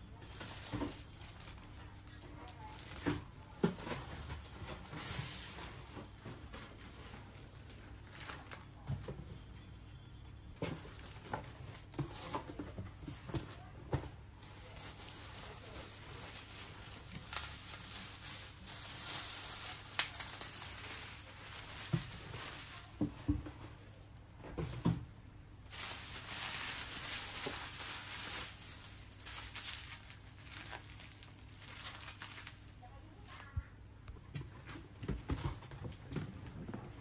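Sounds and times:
plastic bags crinkling: 0:00.1 - 0:08.9, 0:10.6 - 0:13.7, 0:14.3 - 0:23.4, 0:25.6 - 0:33.5
shredded paper rustling: 0:14.4 - 0:23.2, 0:25.7 - 0:33.4.

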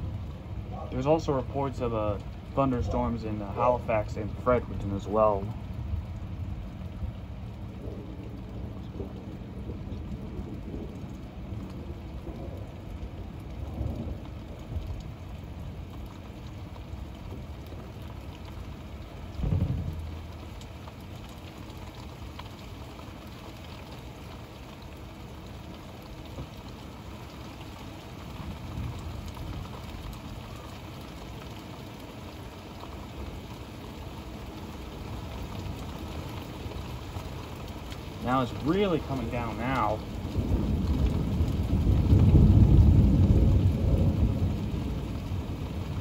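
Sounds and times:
low thunder rumble: 0:00.0 - 0:22.0, 0:28.2 - 0:31.1, 0:37.3 - 0:46.0
steady rain: 0:00.0 - 0:46.0.

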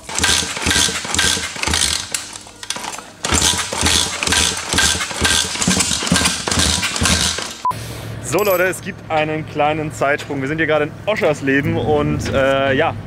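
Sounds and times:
small motorbike engine running in bursts: 0:00.0 - 0:07.6.

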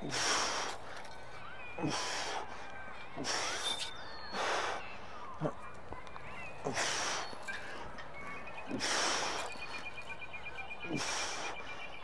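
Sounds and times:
man breathing hard: 0:00.0 - 0:01.2, 0:01.8 - 0:04.9, 0:06.6 - 0:08.0, 0:08.6 - 0:10.0, 0:10.8 - 0:12.0.

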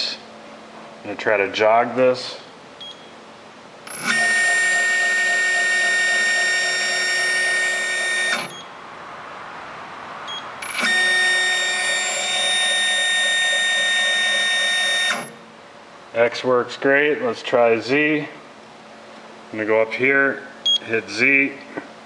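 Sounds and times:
short control beep: 0:02.8 - 0:03.1, 0:06.0 - 0:08.7, 0:20.6 - 0:20.8
high-pitched motor whine: 0:03.9 - 0:08.7, 0:10.6 - 0:15.4.

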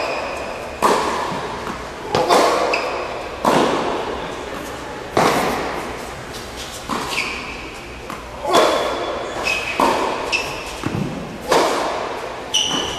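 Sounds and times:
shoe squeak: 0:00.0 - 0:00.8, 0:02.5 - 0:03.2, 0:06.3 - 0:10.9, 0:12.5 - 0:12.9
tennis ball racket hits: 0:00.0 - 0:04.0, 0:05.1 - 0:12.9.

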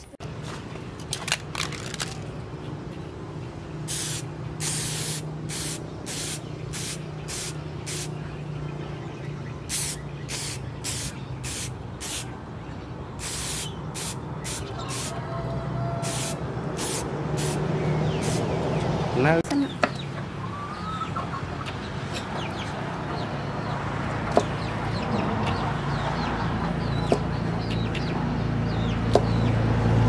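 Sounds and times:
aerosol spray can hissing: 0:03.9 - 0:08.1, 0:09.7 - 0:12.2, 0:16.0 - 0:17.6, 0:18.2 - 0:18.4.

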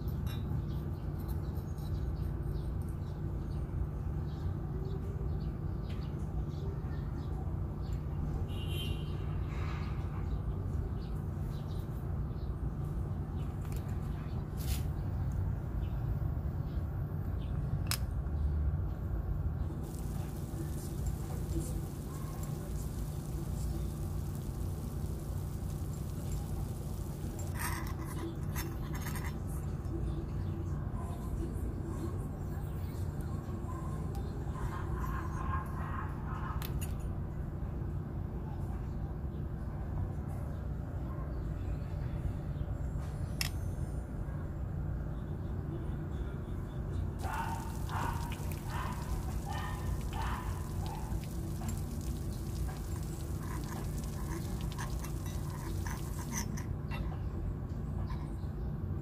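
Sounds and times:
egg frying crackle: 0:19.8 - 0:28.2, 0:47.2 - 0:56.6
metal spoon scraping a small wok: 0:53.2 - 0:56.7.

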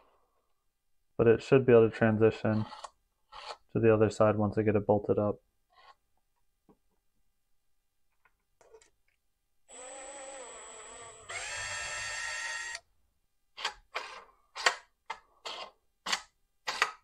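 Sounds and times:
drill motor whining: 0:09.7 - 0:12.8.

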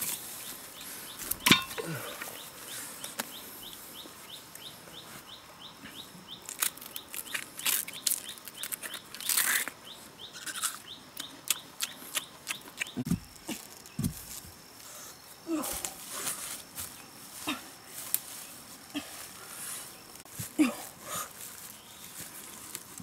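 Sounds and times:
bird chirping: 0:00.1 - 0:14.1
digging stick thudding on soil: 0:01.2 - 0:02.0
plant stalk snapping and peeling: 0:06.5 - 0:09.8.

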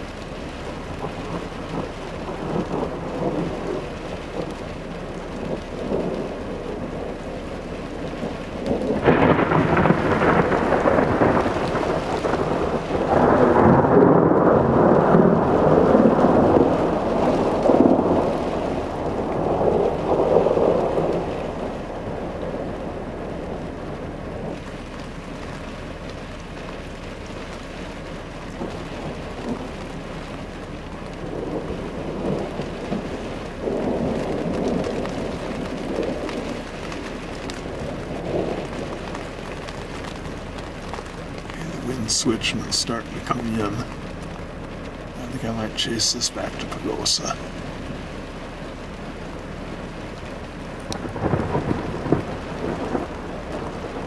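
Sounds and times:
hiss of precipitation and wind: 0:00.0 - 0:54.0
thunder rumble: 0:00.0 - 0:54.0.

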